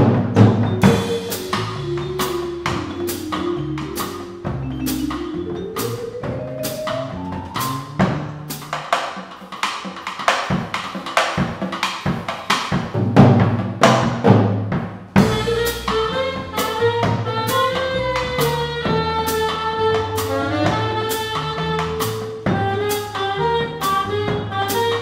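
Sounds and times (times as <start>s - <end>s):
upright bass notes: 0.0s - 8.8s, 15.2s - 25.0s
run of rising notes: 0.7s - 8.8s.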